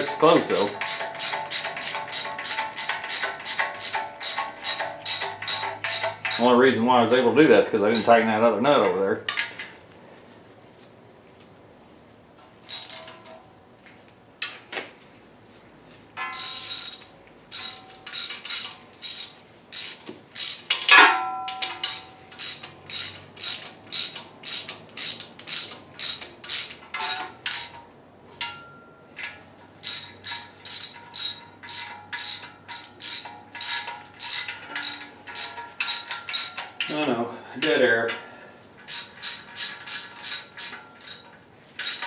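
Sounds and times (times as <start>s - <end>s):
socket ratchet ratcheting: 0.0s - 6.5s, 7.9s - 8.2s, 12.7s - 13.3s, 16.3s - 20.9s, 21.7s - 27.8s, 29.8s - 37.0s, 38.9s - 42.0s
metal clank: 20.7s - 22.7s, 30.7s - 37.0s.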